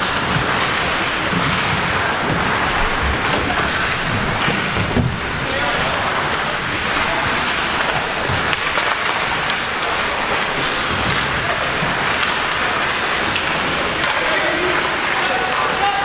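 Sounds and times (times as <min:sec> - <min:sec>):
skates scraping on ice: 0:00.0 - 0:15.2
hockey sticks or puck clicking: 0:05.4 - 0:15.9.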